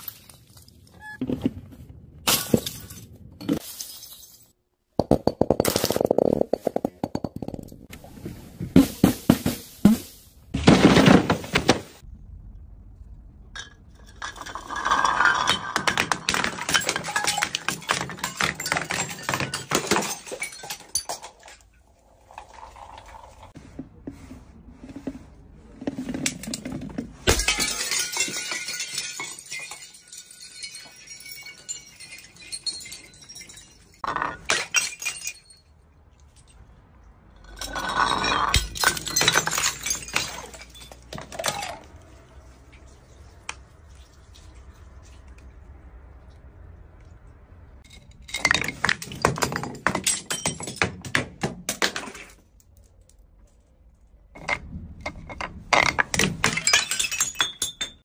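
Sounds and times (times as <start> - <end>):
glass bottles smashing on concrete: 2.3 - 7.6, 13.6 - 21.7, 27.2 - 35.8, 37.4 - 42.0, 47.8 - 52.6, 55.7 - 58.0
glass shards tinkling: 27.4 - 35.7.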